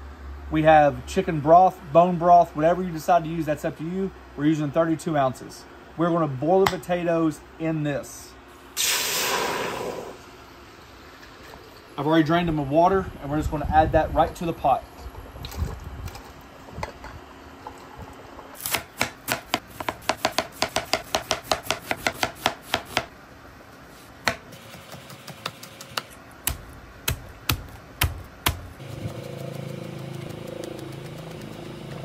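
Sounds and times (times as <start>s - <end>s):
knife chopping on cutting board: 18.7s - 23.1s.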